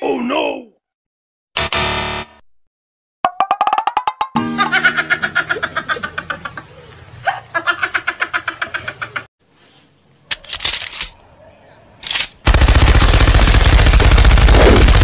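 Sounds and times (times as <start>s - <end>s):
laughing sound effect: 4.4s - 9.3s
loud burst of noise: 13.9s - 15.0s.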